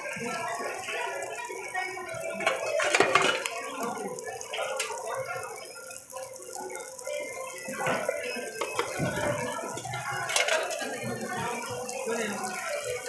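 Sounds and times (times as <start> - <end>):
noodles sizzling on griddle: 0.0 - 13.0
tongs and ladle scraping pan: 2.4 - 3.6, 8.6 - 11.0.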